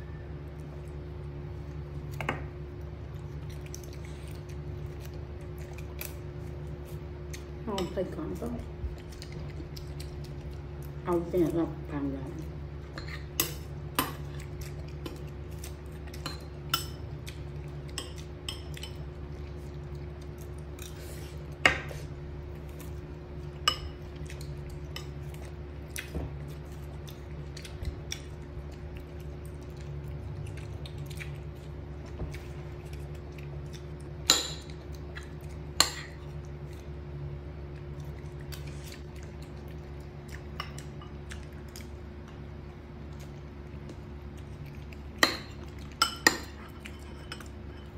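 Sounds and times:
steady low hum: 0:00.0 - 0:47.9
dishes and cutlery clinking: 0:45.2 - 0:47.9.

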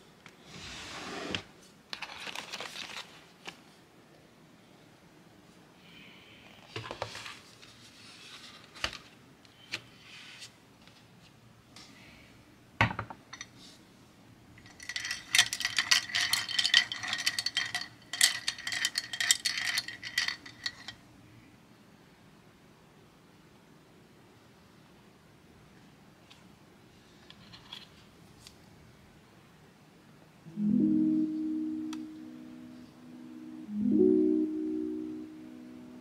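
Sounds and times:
paintbrushes clinking in glass jar: 0:14.6 - 0:21.0.

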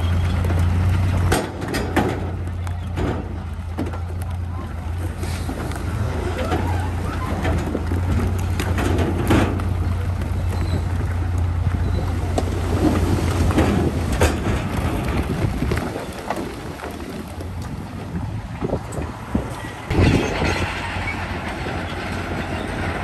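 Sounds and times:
heavy diesel machinery drone: 0:00.0 - 0:15.7, 0:17.3 - 0:23.0
metal clanks and knocks: 0:00.2 - 0:04.2, 0:06.4 - 0:10.9, 0:12.4 - 0:15.3, 0:18.6 - 0:23.0.

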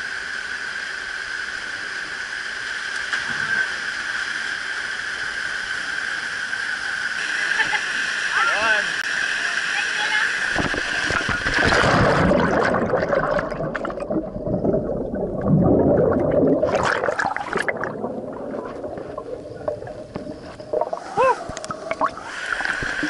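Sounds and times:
bubbles churning underwater: 0:10.6 - 0:23.0.

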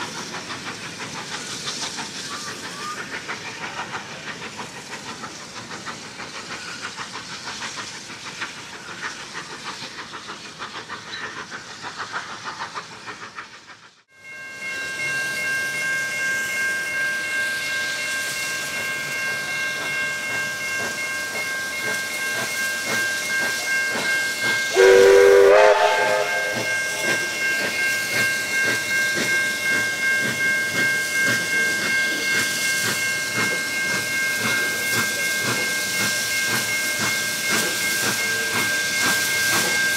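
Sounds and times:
train rolling: 0:00.0 - 0:39.9
level crossing warning bells: 0:14.2 - 0:39.9
steam locomotive whistle: 0:24.7 - 0:27.8.

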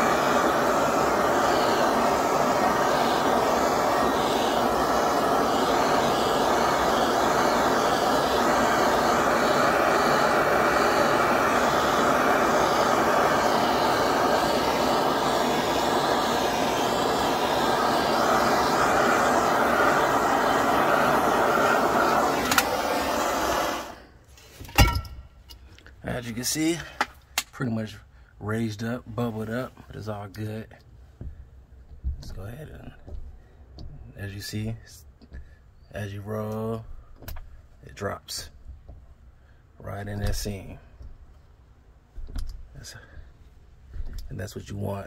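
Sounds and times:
heat gun blowing: 0:00.0 - 0:25.1.

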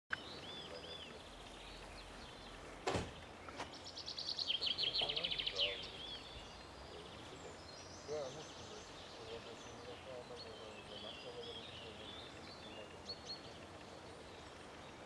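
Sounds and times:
songbirds singing: 0:00.1 - 0:15.0
fast bird trill: 0:00.2 - 0:15.0
sharp knock: 0:02.8 - 0:03.2.

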